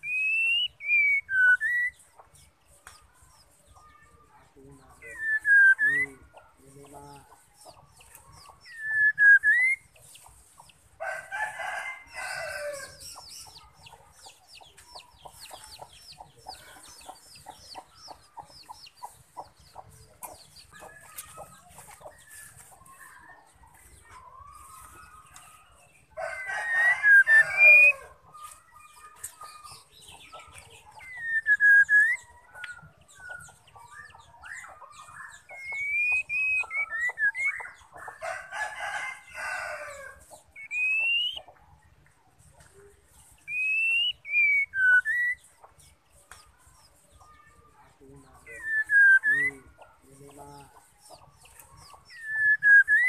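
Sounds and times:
faint chirps and ticks: 1.8s - 5.1s, 6.0s - 8.8s, 9.8s - 11.3s, 12.8s - 26.6s, 28.1s - 39.4s, 49.5s - 52.2s
rooster crowing: 11.0s - 13.0s, 26.1s - 28.1s, 38.2s - 40.2s
bird swooping whistles: 43.5s - 45.4s.

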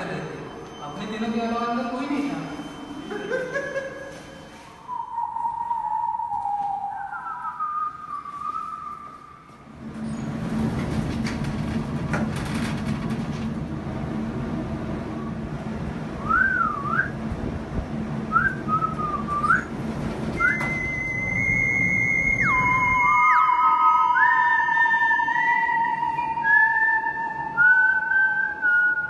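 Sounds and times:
steady low hum: 0.0s - 29.0s
theremin-like electronic tones: 2.4s - 9.7s, 20.3s - 29.0s
whistled tune: 4.8s - 9.5s, 16.2s - 17.2s, 18.3s - 19.7s, 20.4s - 29.0s.

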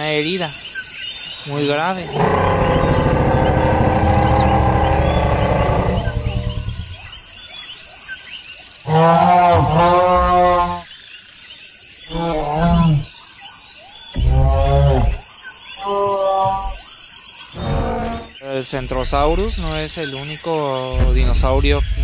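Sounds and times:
dinosaur roars: 2.0s - 7.2s, 8.9s - 10.8s, 12.1s - 13.1s, 14.2s - 15.2s, 17.6s - 18.4s.

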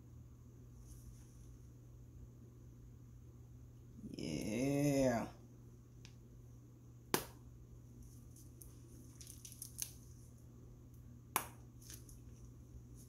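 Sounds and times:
steady low hum: 0.0s - 13.0s
plastic piping bag crinkling: 8.1s - 10.3s, 11.8s - 13.0s.

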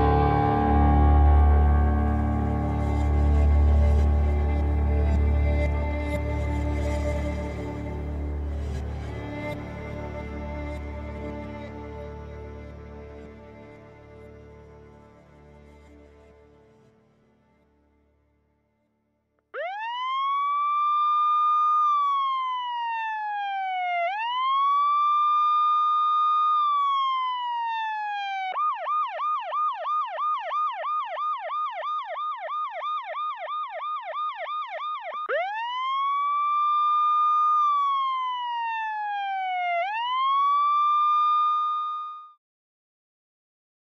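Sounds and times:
electronic siren wailing and yelping: 19.6s - 42.3s.

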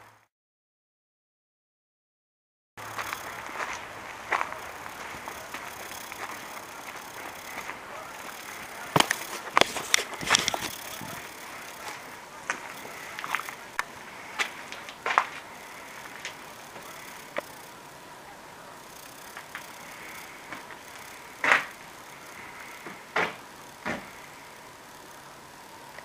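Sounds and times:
steady hiss: 2.8s - 26.0s
footsteps on rough floor: 2.9s - 17.4s.

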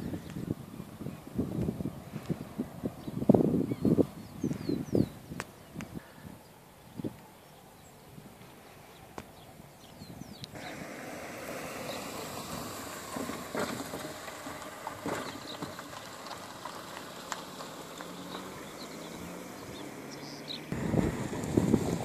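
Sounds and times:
tyres rolling on gravel: 10.5s - 22.0s.

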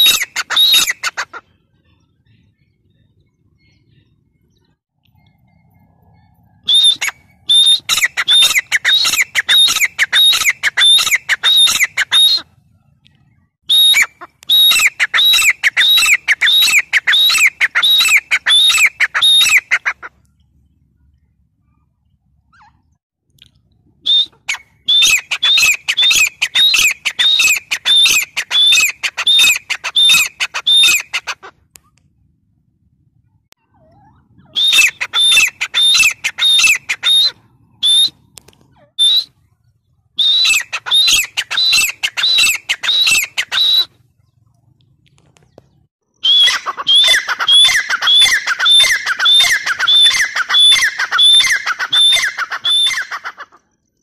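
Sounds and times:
bird calling shrill notes: 0.0s - 4.7s, 6.6s - 12.6s, 13.2s - 19.9s, 24.1s - 31.3s, 33.6s - 38.2s, 38.8s - 39.5s, 40.2s - 44.0s, 46.1s - 53.6s.

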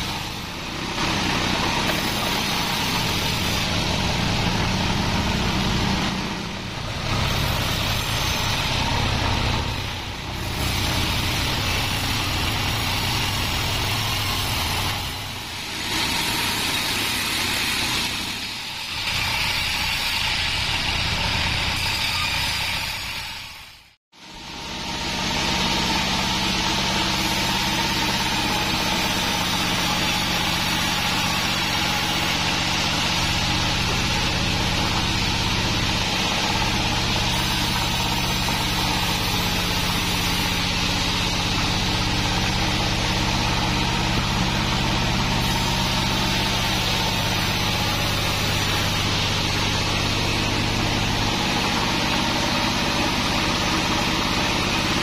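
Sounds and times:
deep drone: 0.0s - 18.5s
band saw humming and whining: 0.0s - 23.4s, 24.2s - 55.0s.

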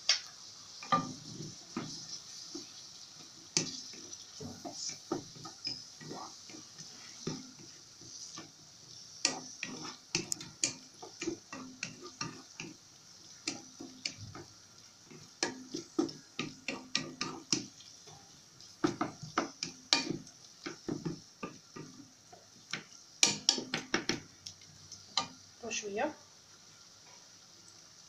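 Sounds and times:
spatula tapping against pan: 0.1s - 2.8s, 3.6s - 7.7s, 9.2s - 12.8s, 13.4s - 14.5s, 15.1s - 17.8s, 18.6s - 24.3s
wooden spatula scraping a pan: 0.8s - 24.3s.

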